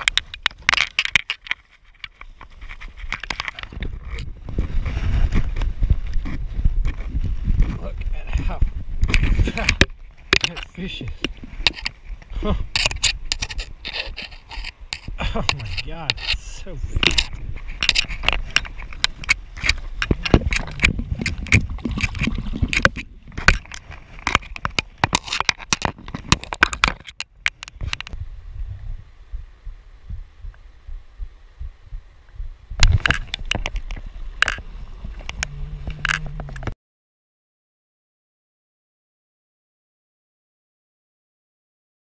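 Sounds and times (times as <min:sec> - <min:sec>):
clothing rubbing on camera: 0:01.6 - 0:27.1
low rumble: 0:28.0 - 0:36.8.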